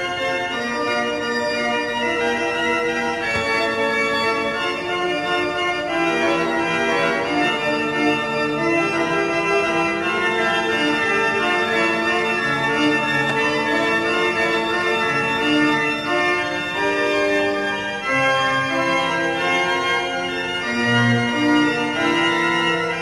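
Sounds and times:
pipe organ playing slow chords: 0:00.0 - 0:23.0.

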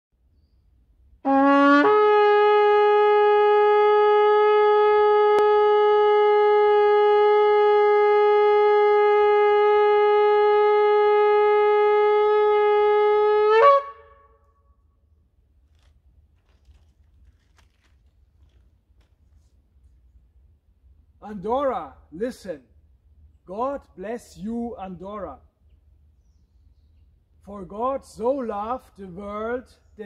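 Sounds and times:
shofar blast: 0:01.2 - 0:14.6.

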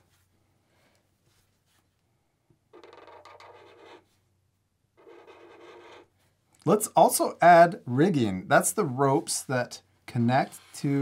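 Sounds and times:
marker scratching on paper: 0:02.7 - 0:04.1, 0:05.0 - 0:06.1.

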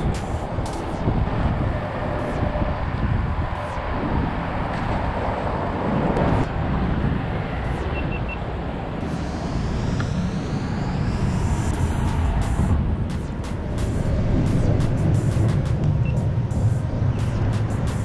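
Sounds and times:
short high beeps: 0:16.0 - 0:16.2.

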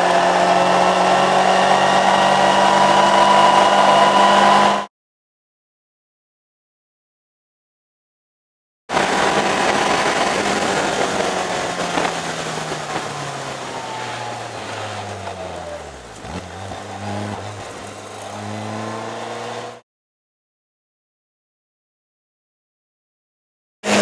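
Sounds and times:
car engine revving: 0:00.0 - 0:04.9, 0:08.9 - 0:19.8
wet road noise: 0:08.9 - 0:19.8.

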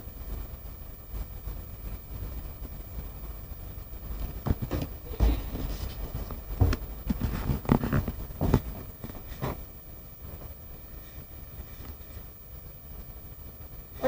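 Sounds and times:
knocks and rustling: 0:04.1 - 0:09.7
microphone rubbing against cloth: 0:04.4 - 0:09.7.

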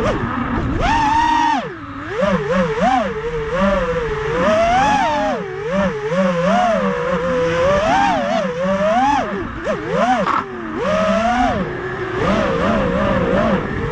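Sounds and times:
drone motors buzzing whine: 0:00.0 - 0:13.9.

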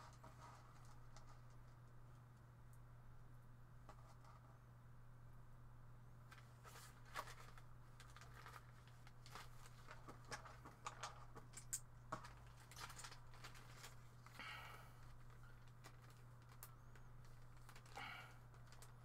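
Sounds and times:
steady low hum: 0:00.0 - 0:19.0
plastic bags crinkling: 0:06.7 - 0:19.0.

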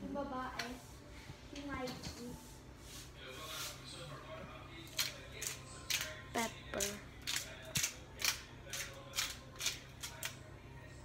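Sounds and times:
pepper grinder crunching: 0:04.9 - 0:10.4.

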